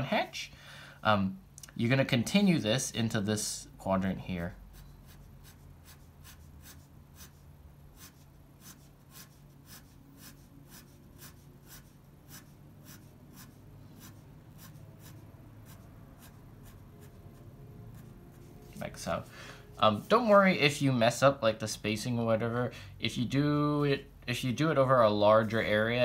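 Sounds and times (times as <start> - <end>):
pen scratching on paper: 4.7 - 18.8.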